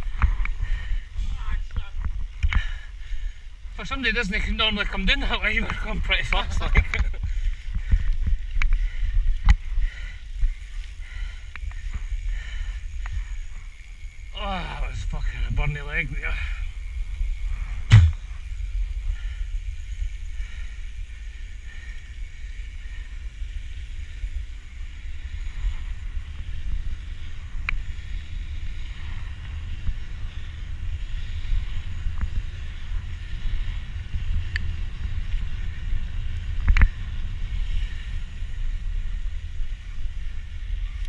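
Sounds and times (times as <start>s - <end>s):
bike tyres rumbling on tarmac: 0.0s - 41.0s
sharp knocks: 17.9s - 18.2s.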